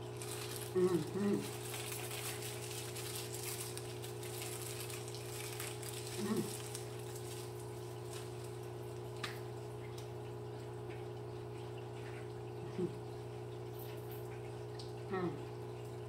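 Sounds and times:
low electrical hum: 0.0s - 16.0s
person humming mm: 0.8s - 1.5s, 6.2s - 6.6s.

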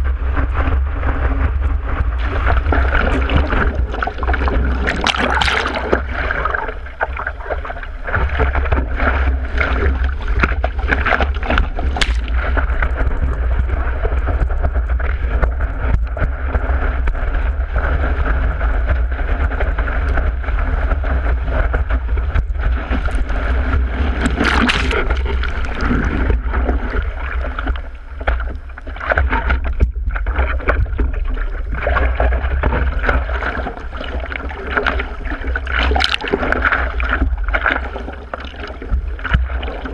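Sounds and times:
seawater rushing and splashing: 0.0s - 39.9s
wind buffeting: 1.6s - 14.1s.

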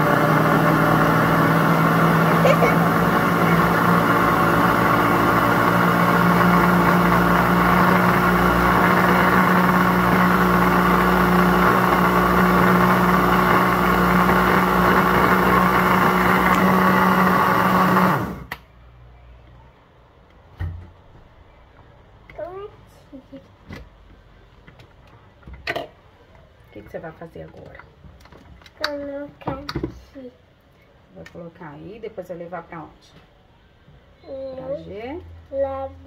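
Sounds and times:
blender motor running: 0.0s - 18.5s.

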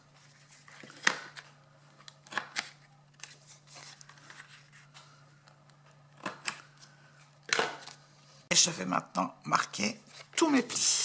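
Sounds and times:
paper rustle: 0.1s - 5.2s.

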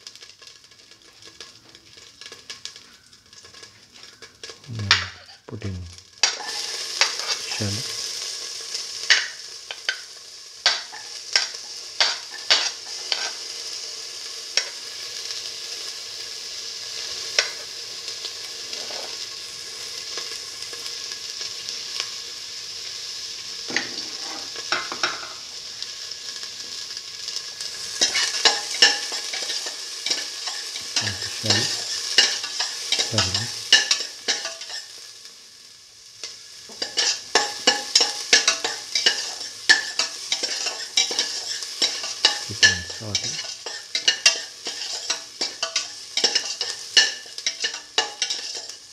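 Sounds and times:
oil popping and crackling: 0.0s - 5.4s, 6.2s - 13.5s, 24.6s - 35.0s, 36.3s - 48.9s
shallots sizzling in hot oil: 0.0s - 48.9s
metal spoon scraping pan: 6.2s - 7.6s, 11.4s - 13.4s, 18.7s - 19.2s, 23.7s - 25.4s, 28.0s - 34.8s, 36.7s - 48.8s.

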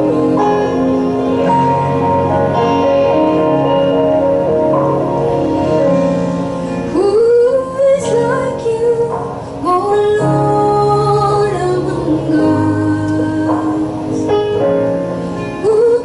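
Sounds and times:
woman singing into microphone: 0.0s - 2.0s, 6.9s - 14.5s, 15.4s - 16.0s
instrumental accompaniment: 0.0s - 16.0s.

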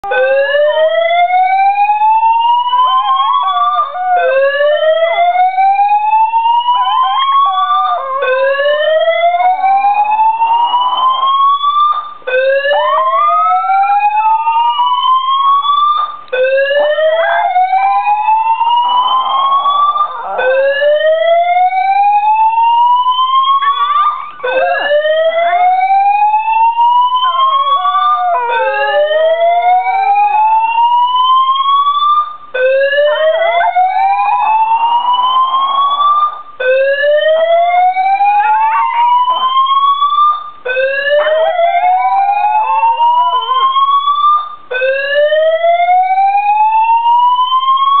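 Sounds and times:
fire alarm siren sweeps: 0.0s - 48.0s
small dog howling: 12.7s - 13.7s, 16.7s - 20.8s, 23.5s - 29.9s, 32.9s - 36.3s, 37.6s - 39.8s, 41.0s - 43.7s.

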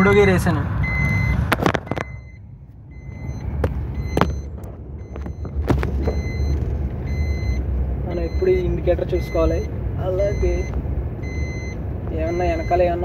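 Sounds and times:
car engine and road rumble: 0.0s - 13.0s
phone being handled: 3.6s - 6.3s.

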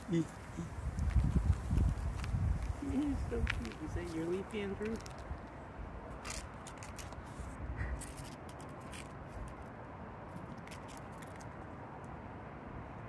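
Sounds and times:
dry leaf scraping on concrete: 1.0s - 9.6s.

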